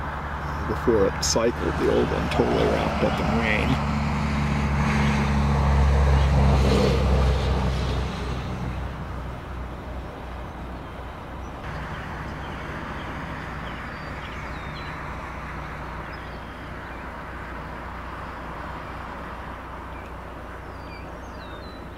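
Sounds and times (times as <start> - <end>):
birds chirping: 0.0 - 3.8, 9.8 - 21.9
vehicle engine idling: 0.0 - 4.2, 8.9 - 21.9.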